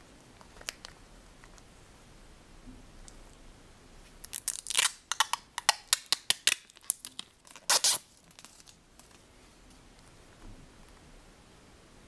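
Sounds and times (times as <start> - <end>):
plastic film peeling and crackling: 4.2 - 9.2.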